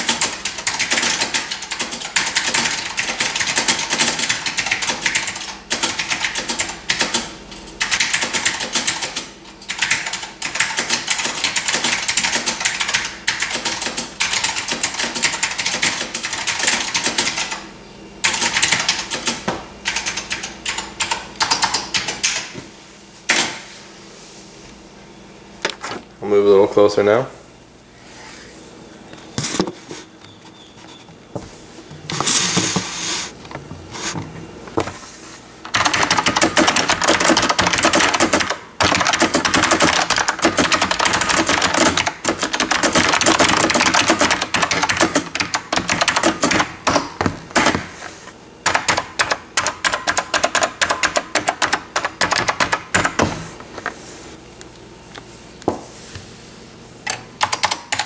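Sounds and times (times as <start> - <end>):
mechanical keyboard typing: 0.0 - 17.6, 18.2 - 22.4, 35.7 - 47.8, 48.6 - 53.3, 57.0 - 58.0.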